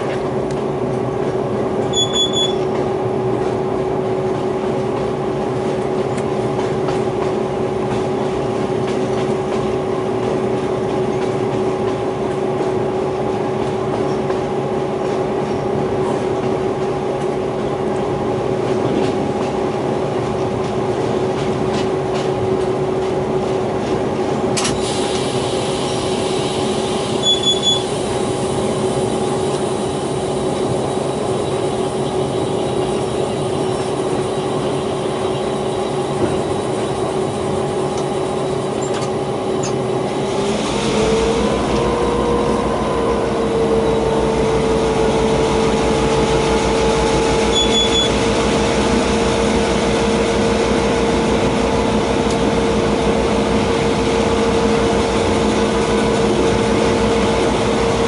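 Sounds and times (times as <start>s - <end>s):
locomotive engine drone: 0.0s - 58.0s
wheels rumbling on rails: 0.0s - 58.0s
short high double beep: 1.9s - 2.6s, 27.2s - 27.9s, 47.5s - 48.1s.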